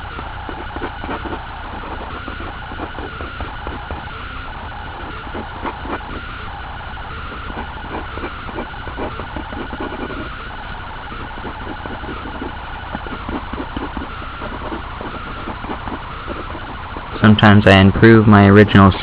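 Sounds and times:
pen scratching on paper: 0.0s - 4.1s, 4.9s - 6.3s, 7.0s - 17.2s
electrical hum and hiss: 0.0s - 19.0s.

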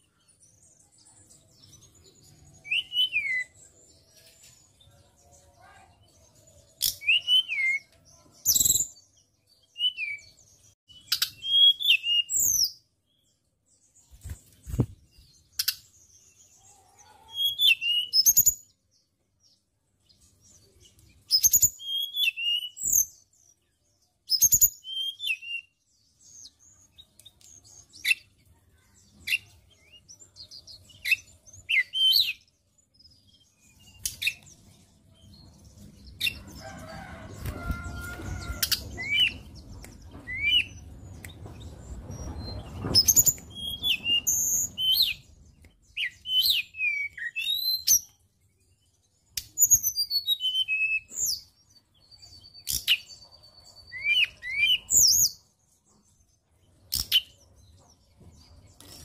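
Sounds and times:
bird singing chirps and whistles: 2.0s - 3.6s, 6.8s - 9.0s, 9.6s - 12.8s, 17.3s - 18.8s, 21.3s - 23.2s, 24.3s - 28.2s, 29.3s - 32.5s, 38.4s - 41.3s, 42.2s - 48.1s, 49.4s - 51.5s, 52.1s - 55.4s.

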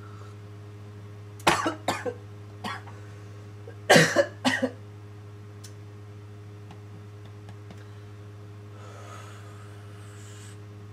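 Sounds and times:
steady low hum: 0.0s - 10.9s
man coughing: 1.5s - 3.0s, 3.9s - 4.8s.

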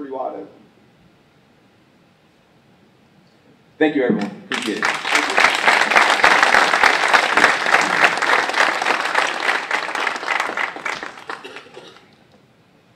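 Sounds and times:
audience applauding: 4.5s - 12.2s.

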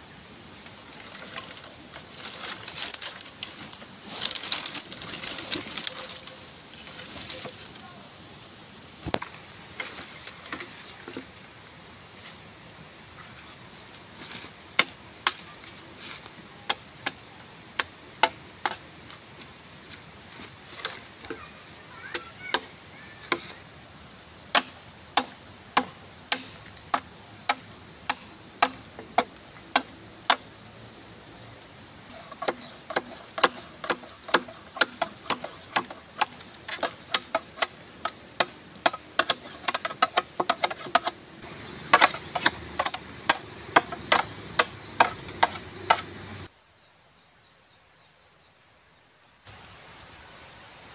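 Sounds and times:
machete chopping bamboo: 24.5s - 30.4s, 32.2s - 41.2s, 41.8s - 46.1s.

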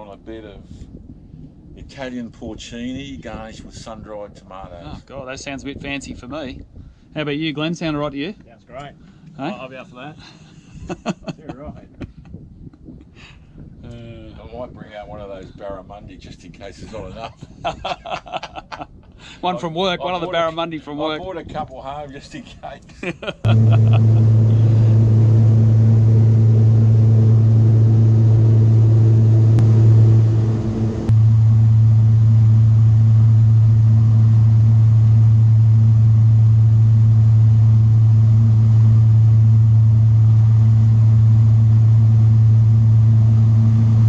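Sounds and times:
boat engine drone: 23.5s - 44.0s.

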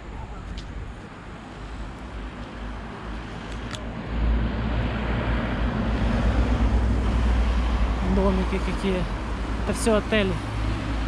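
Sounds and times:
car passing by: 3.1s - 11.0s.

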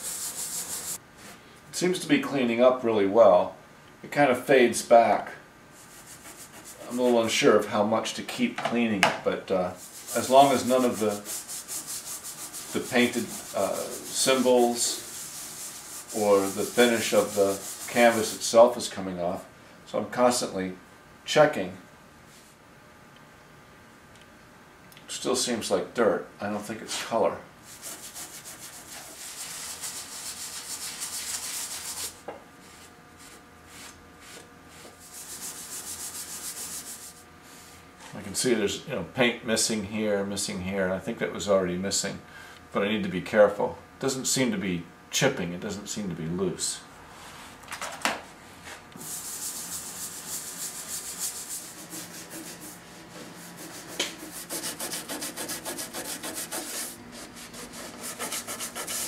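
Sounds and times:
brush scrubbing canvas: 0.0s - 1.0s, 5.8s - 7.4s, 9.8s - 18.5s, 27.7s - 37.8s, 48.6s - 59.0s.

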